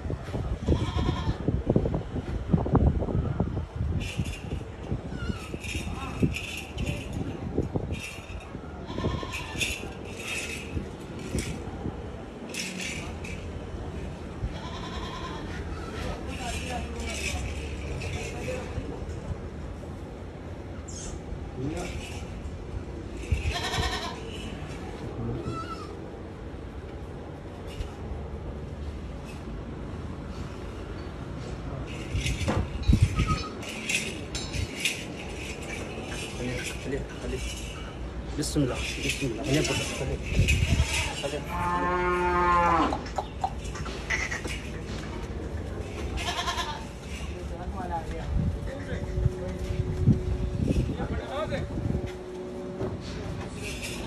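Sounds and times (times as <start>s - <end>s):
metallic clinking and rattling: 4.0s - 14.0s, 16.1s - 19.3s, 21.6s - 25.0s, 31.8s - 48.1s, 49.1s - 54.0s
livestock bleating: 14.6s - 16.0s, 46.2s - 46.9s.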